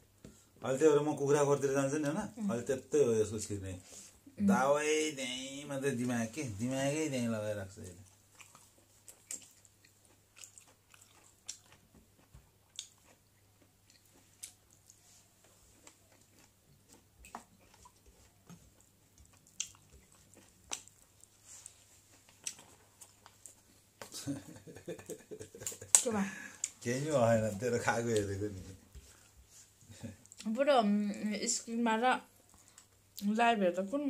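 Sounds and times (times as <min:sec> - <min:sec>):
person chewing: 0:07.8 - 0:26.8, 0:29.0 - 0:30.5.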